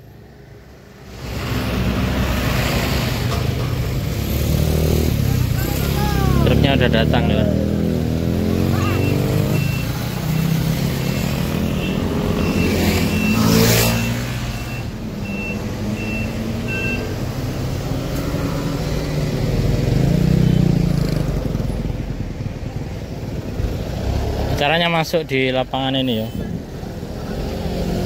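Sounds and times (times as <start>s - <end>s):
passing vehicle rush: 0.0s - 28.0s
high reversing beep: 8.6s - 17.2s.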